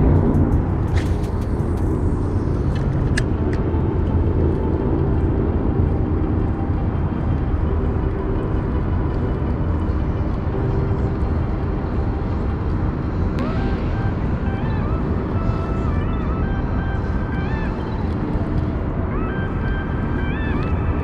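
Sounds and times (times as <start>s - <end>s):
motor rumbling: 0.0s - 21.0s.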